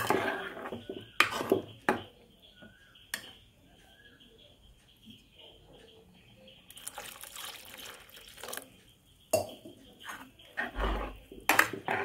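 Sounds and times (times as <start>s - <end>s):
liquid sloshing in a pot: 6.7s - 8.8s.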